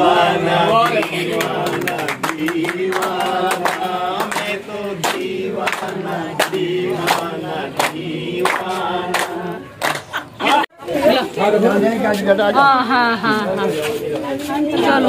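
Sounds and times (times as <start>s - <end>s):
men singing in chorus: 0.0s - 10.7s
hands clapping: 0.7s - 10.6s.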